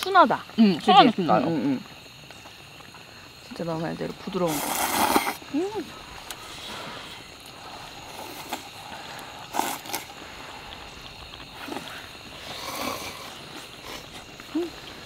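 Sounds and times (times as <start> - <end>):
faint steady hiss: 0.0 - 15.0
person slurping noodles: 4.5 - 5.5, 7.6 - 15.0.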